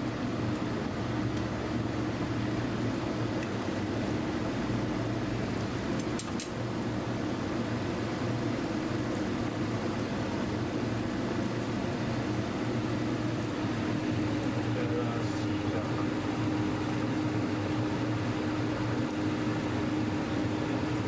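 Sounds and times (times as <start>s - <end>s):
gas cooking range humming: 0.0s - 21.0s
noodles stir-frying in pan: 0.1s - 21.0s.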